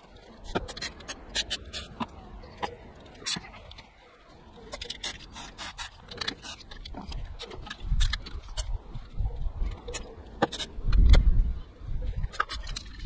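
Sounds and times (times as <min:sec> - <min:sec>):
light clicks and scraping: 0:00.0 - 0:11.4, 0:12.0 - 0:13.0.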